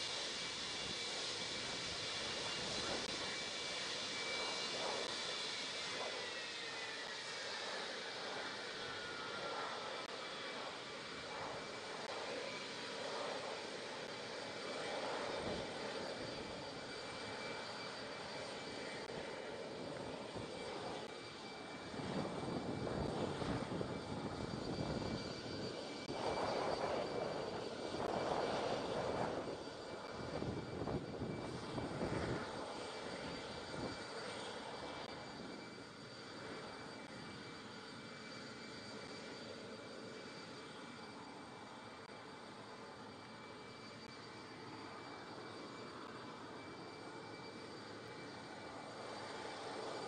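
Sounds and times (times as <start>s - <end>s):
jet aircraft rumble: 0.0s - 37.7s
high jet whine: 0.0s - 50.0s.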